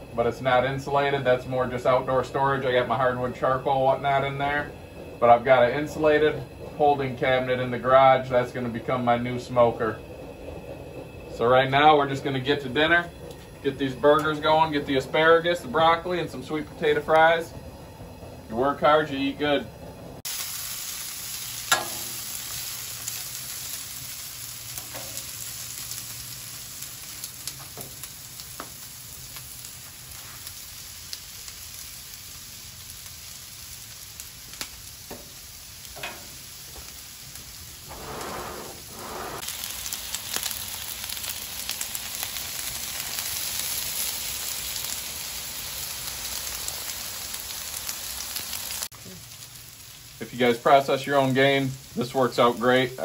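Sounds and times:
vegetables sizzling on a griddle: 0:00.0 - 0:10.0, 0:11.3 - 0:17.5, 0:20.2 - 0:53.0
spatula scraping a griddle: 0:37.9 - 0:39.5.

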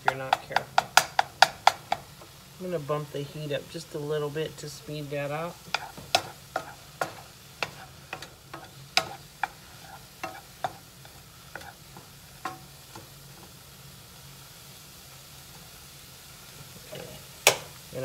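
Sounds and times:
wooden spoon knocking pan: 0:00.0 - 0:02.1, 0:05.7 - 0:13.5
faint sizzle: 0:00.0 - 0:18.0.

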